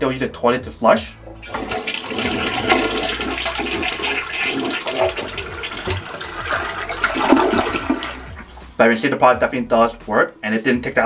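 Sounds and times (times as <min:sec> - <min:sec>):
toilet flushing: 0:01.4 - 0:08.6.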